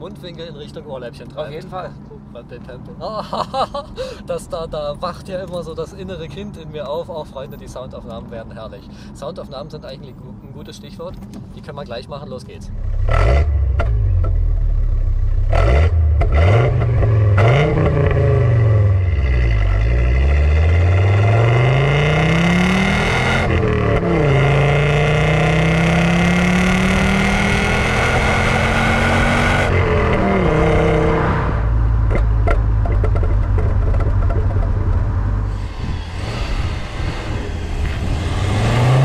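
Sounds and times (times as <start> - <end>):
car engine revving: 12.7 - 39.0.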